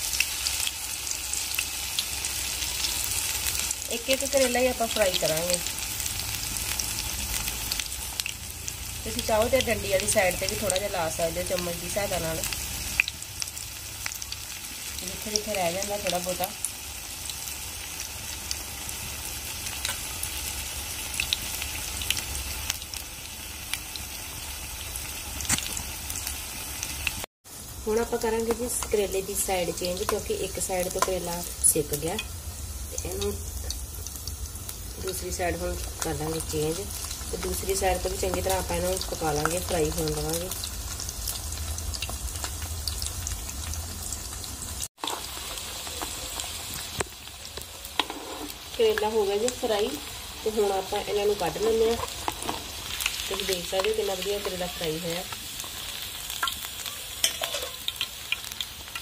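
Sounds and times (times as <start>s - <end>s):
deep-frying sizzle with pops: 0.0s - 59.0s
spoon tapping pan: 57.2s - 57.8s.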